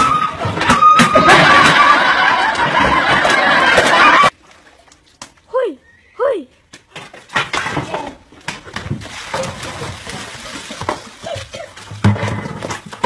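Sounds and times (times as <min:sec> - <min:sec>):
water splashing from bucket: 0:07.6 - 0:13.0
scuffling on wet concrete: 0:08.4 - 0:13.0.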